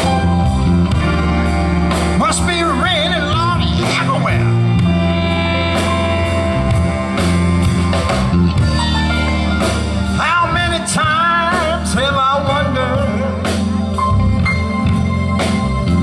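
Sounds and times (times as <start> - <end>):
lead melody with wide vibrato: 0.0 - 16.0
soul band playing slow ballad: 0.0 - 16.0.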